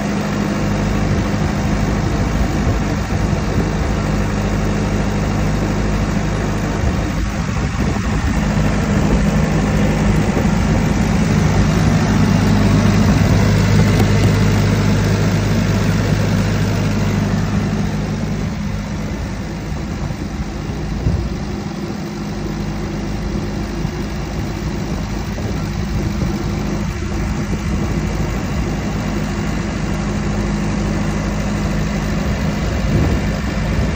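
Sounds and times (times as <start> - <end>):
diesel engine idling: 0.0 - 33.9.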